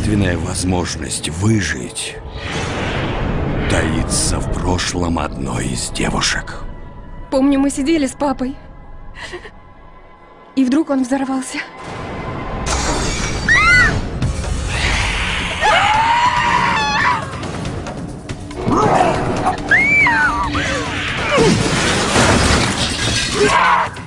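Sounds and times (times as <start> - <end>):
dramatic music: 0.0 - 24.0
high screams: 13.4 - 14.0, 14.7 - 17.4, 19.6 - 21.5
crashing and shattering effects: 21.1 - 24.0.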